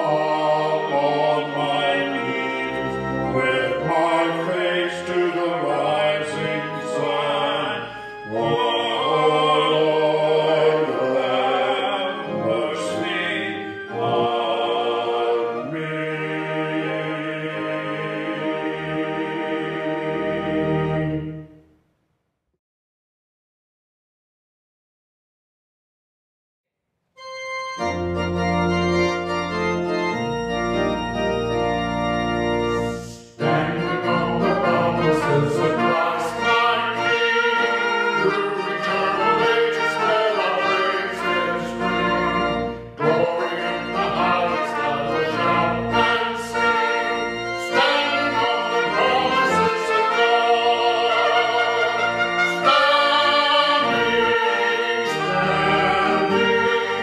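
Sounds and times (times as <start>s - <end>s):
man singing: 0.0s - 18.6s, 33.2s - 42.2s, 43.0s - 47.0s, 47.6s - 57.0s
organ playing a hymn: 0.0s - 21.6s, 27.2s - 57.0s.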